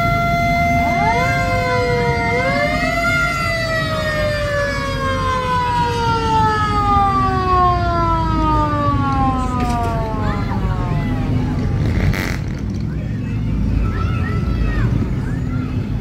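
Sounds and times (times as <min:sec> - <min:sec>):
sirens wailing: 0:00.0 - 0:12.3.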